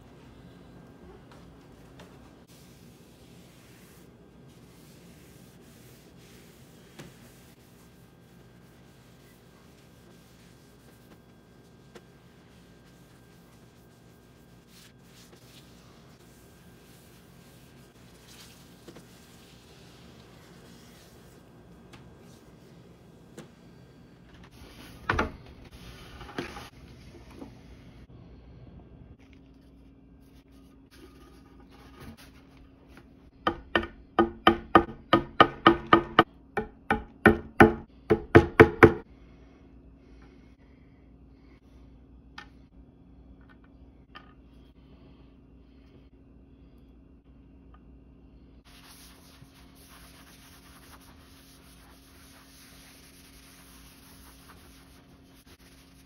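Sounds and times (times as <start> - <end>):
cloth rag rubbing wood: 1.3 - 22.9, 48.7 - 56.0.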